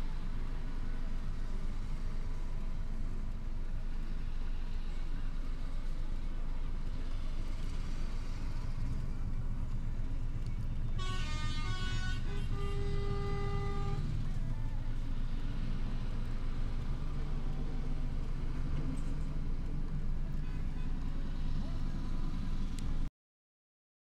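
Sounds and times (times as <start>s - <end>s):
diesel truck engines rumbling: 0.0s - 23.1s
multi-tone truck air horn: 10.9s - 14.4s.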